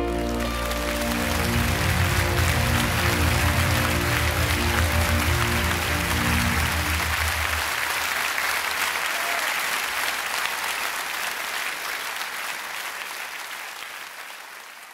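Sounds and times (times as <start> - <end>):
band's held notes: 0.0 - 7.9
audience applauding: 0.0 - 14.9.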